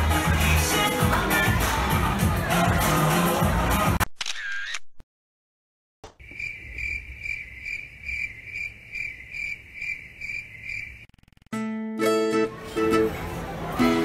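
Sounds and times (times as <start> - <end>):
cricket chirping: 6.2 - 11.5.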